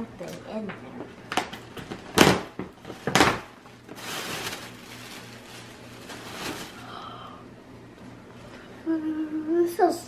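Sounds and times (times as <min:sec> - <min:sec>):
faint steady hum: 0:00.0 - 0:10.0
paper bag and tissue rustling: 0:02.2 - 0:07.2.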